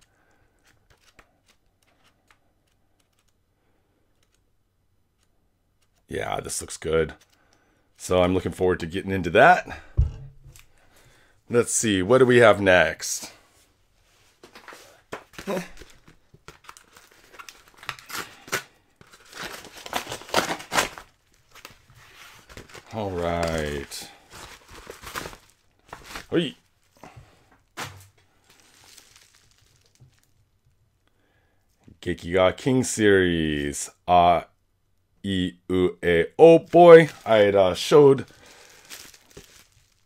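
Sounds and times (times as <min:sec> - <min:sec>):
paper pages flipping: 0:00.0 - 0:03.4, 0:04.1 - 0:04.5, 0:05.2 - 0:06.1, 0:07.1 - 0:07.4, 0:14.4 - 0:30.4, 0:38.5 - 0:40.0.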